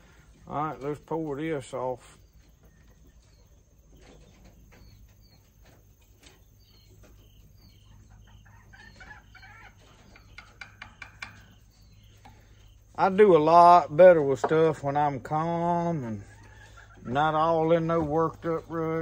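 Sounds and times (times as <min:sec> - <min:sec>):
hens clucking: 0:00.0 - 0:19.0
faint bird chirps: 0:01.7 - 0:13.2.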